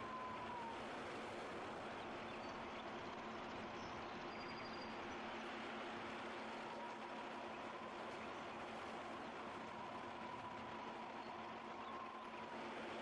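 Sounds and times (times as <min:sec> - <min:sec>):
faint high bird chirps: 0:02.3 - 0:05.0.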